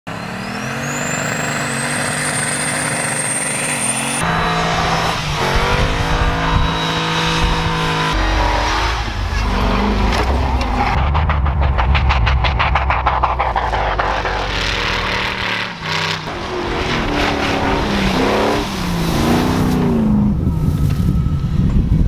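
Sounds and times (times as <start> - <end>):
off-road vehicle engines revving: 0.1 - 11.0, 14.5 - 21.0.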